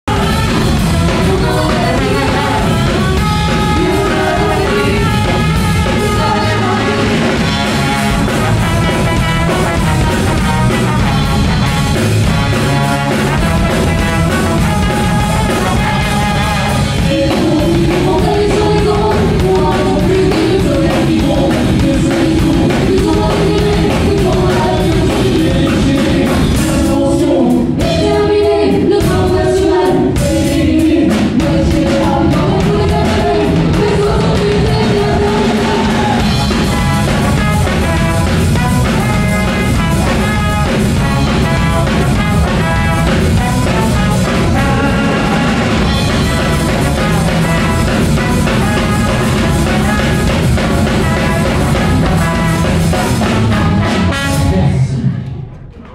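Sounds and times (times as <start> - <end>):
trumpet and trombone playing: 0.0 - 27.0, 32.2 - 55.0
drum kit: 0.0 - 55.9
electric guitars: 0.0 - 55.9
woman singing: 0.1 - 7.4, 14.8 - 36.4.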